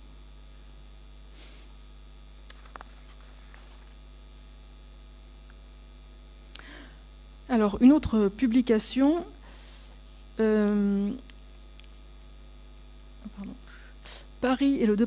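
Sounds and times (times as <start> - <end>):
electrical hum: 0.0 - 15.0
soft rustles: 2.5 - 4.7, 11.4 - 12.6.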